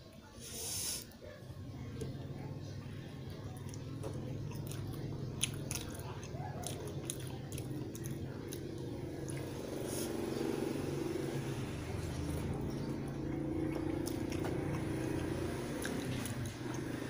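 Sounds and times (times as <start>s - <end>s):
person chewing crunchy sandwich: 3.6s - 8.6s.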